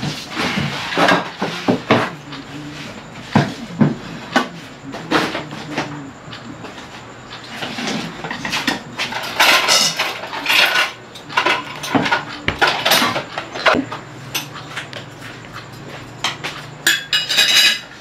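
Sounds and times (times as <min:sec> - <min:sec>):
dishes and cutlery clattering: 0:07.4 - 0:18.0.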